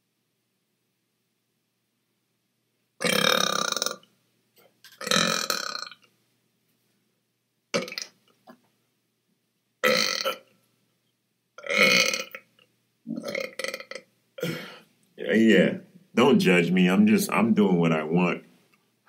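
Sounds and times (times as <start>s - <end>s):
man burping: 3.0s - 4.0s, 5.0s - 6.0s, 7.8s - 8.1s, 9.8s - 10.5s, 11.6s - 12.4s, 13.1s - 14.8s.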